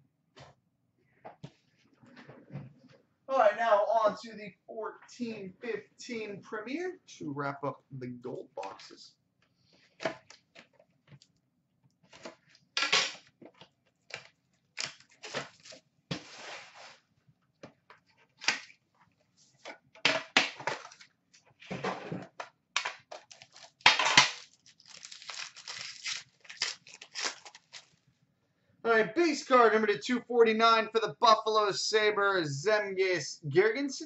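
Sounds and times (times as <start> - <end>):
plastic wrapping tearing and crumpling: 14.8 - 15.8, 23.2 - 28.0.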